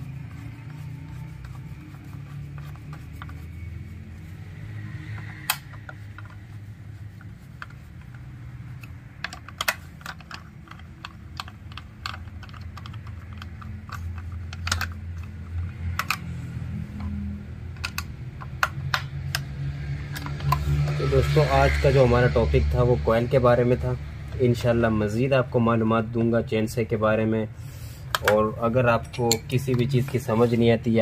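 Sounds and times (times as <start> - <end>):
low steady hum: 0.0 - 31.0
screwdriver tapping plastic housing: 8.8 - 16.3.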